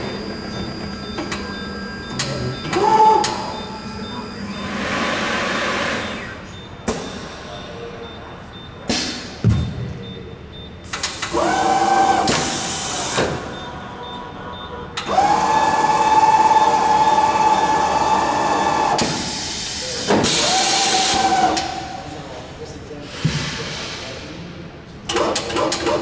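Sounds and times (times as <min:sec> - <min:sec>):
tire changer motor whine: 0:00.0 - 0:06.5, 0:15.0 - 0:19.2.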